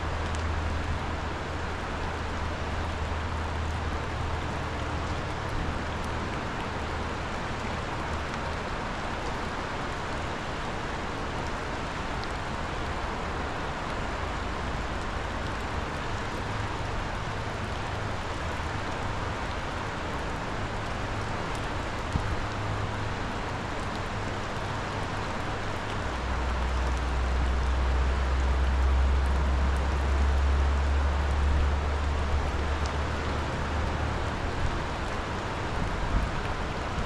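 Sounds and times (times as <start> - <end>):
fast-running river rushing: 0.0 - 37.0.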